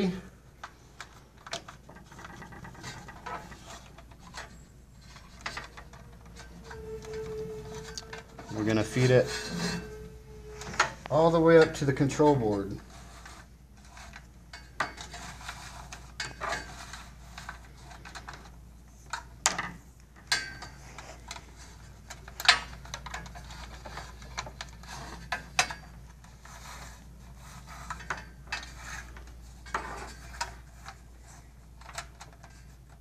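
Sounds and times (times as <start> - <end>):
cable clicking and rubbing in channel: 0.5 - 11.9.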